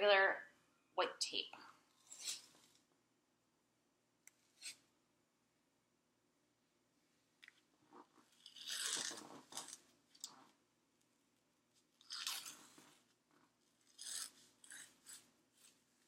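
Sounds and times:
athletic tape peeling off roll: 0:08.4 - 0:10.3.

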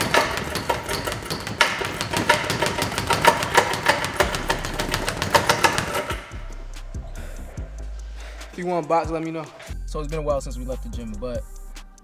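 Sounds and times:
speed bag being punched: 0:00.0 - 0:06.4.

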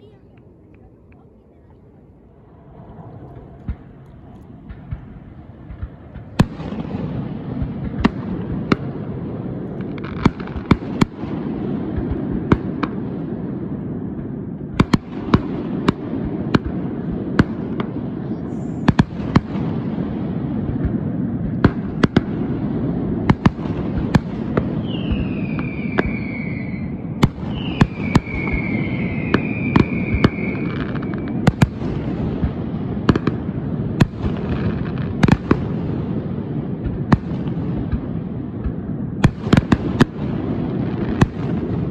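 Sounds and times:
distant fireworks rumble: 0:00.0 - 0:41.9
fireworks bangs and cracks: 0:03.3 - 0:41.9
falling firework whistles: 0:24.5 - 0:31.8.

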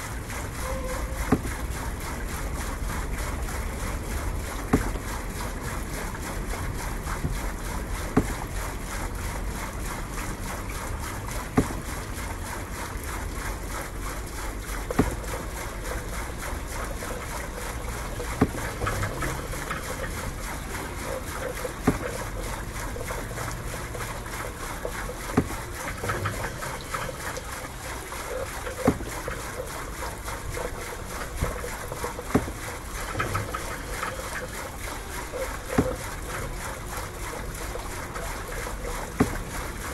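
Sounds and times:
water: 0:00.0 - 0:39.9
wind: 0:00.0 - 0:39.9.

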